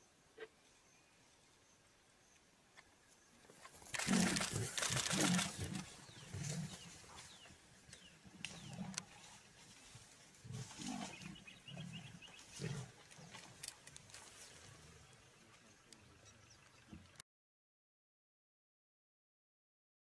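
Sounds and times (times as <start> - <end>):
lion grunting: 4.0 - 7.0, 8.5 - 9.2, 10.4 - 13.5.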